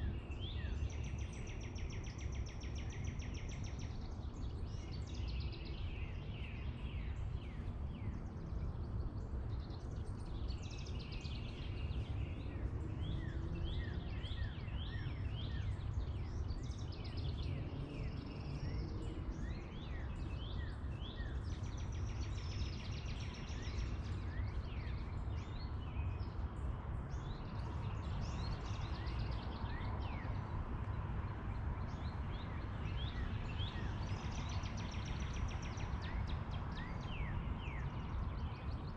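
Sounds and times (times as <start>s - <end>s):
songbirds chirping: 0.0s - 38.9s.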